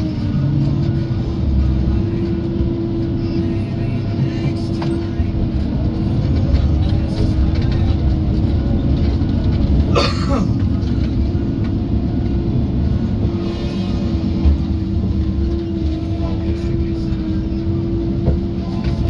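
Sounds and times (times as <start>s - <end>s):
heavy machine engine rumble: 0.0s - 19.0s.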